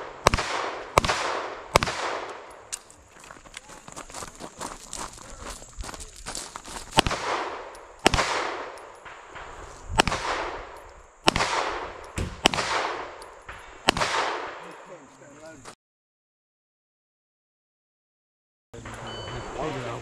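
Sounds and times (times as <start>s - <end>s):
pistol shots with echo: 0.0s - 2.7s, 6.9s - 15.0s.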